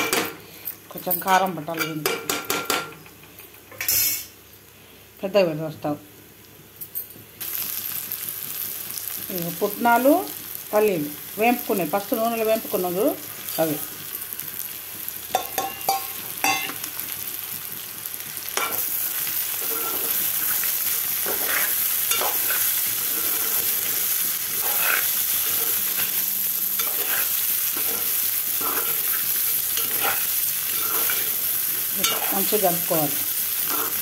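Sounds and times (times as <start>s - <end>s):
steady sizzle: 0.0s - 34.0s
metal spatula scraping and stirring: 19.6s - 26.2s, 26.8s - 31.4s, 33.6s - 34.0s.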